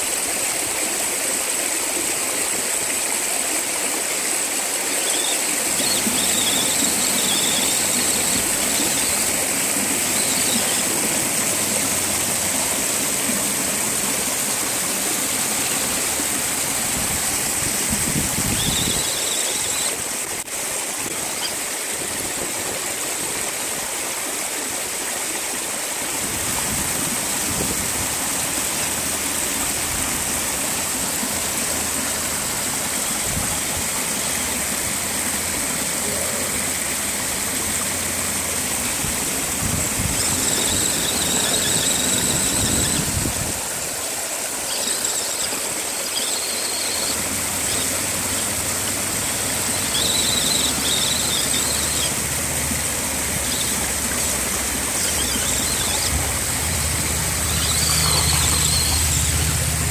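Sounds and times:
stream and small waterfall rushing: 0.0s - 59.9s
toy truck motor running: 4.9s - 20.1s, 38.1s - 43.9s, 44.5s - 59.9s.

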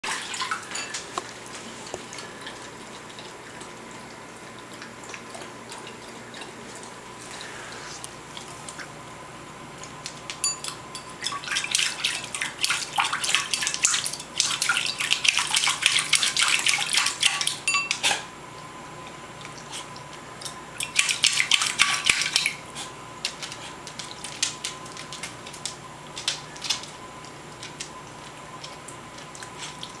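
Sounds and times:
dog splashing in water bowl: 0.0s - 1.1s, 11.2s - 18.3s, 20.8s - 27.0s
bowl clattering on tile floor: 0.5s - 1.1s, 10.4s - 11.4s.

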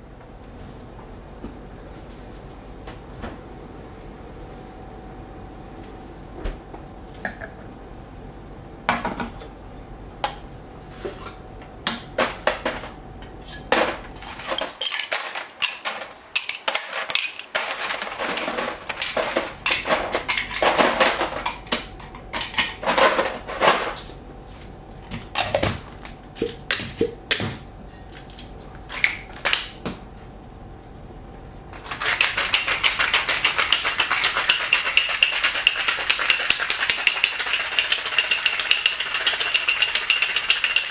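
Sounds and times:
ice clinking into metal shaker: 31.8s - 40.9s
ice rattling in shaker: 31.8s - 40.9s.

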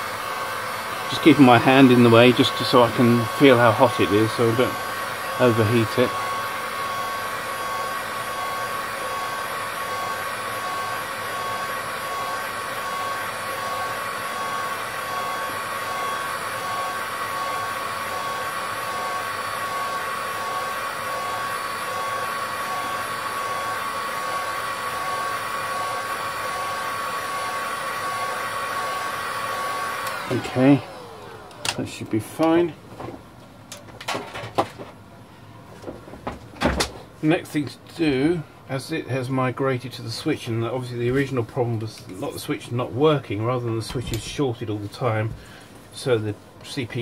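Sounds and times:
hot air gun whining: 0.0s - 32.6s.

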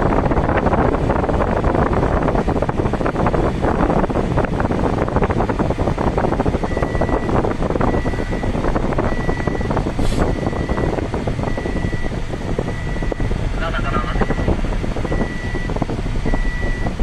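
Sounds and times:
car driving rumble: 0.0s - 17.0s
high electronic beep: 15.1s - 17.0s.

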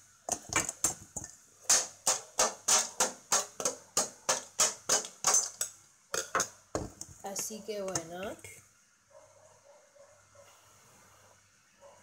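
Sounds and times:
knife clinking on ice in metal bowl: 0.3s - 6.5s.

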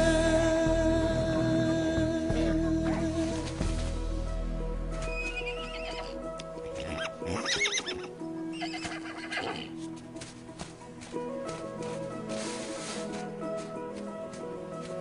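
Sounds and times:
background music: 0.0s - 15.0s
horse whinnying: 5.1s - 6.2s, 6.8s - 9.8s.

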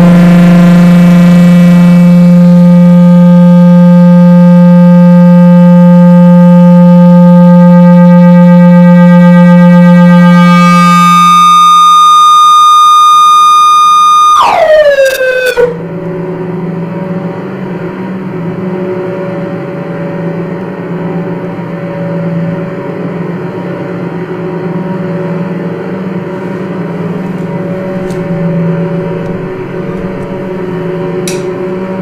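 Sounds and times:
synthesizer drone: 0.0s - 19.3s, 26.8s - 32.0s.

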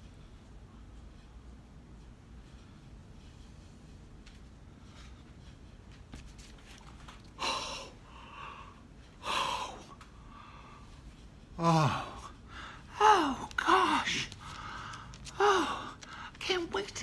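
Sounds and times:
man moaning: 11.6s - 14.3s.

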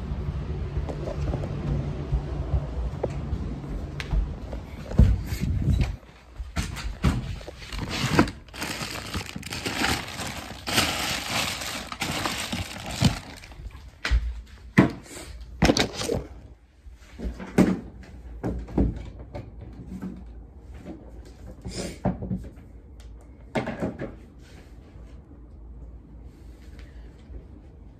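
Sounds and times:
rustling: 6.9s - 13.9s.

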